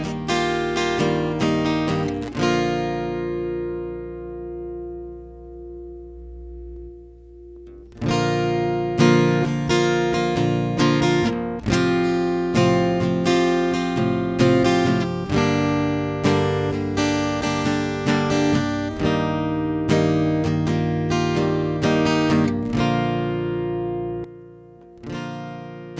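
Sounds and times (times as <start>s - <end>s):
acoustic guitar strumming chords: 0.0s - 25.9s.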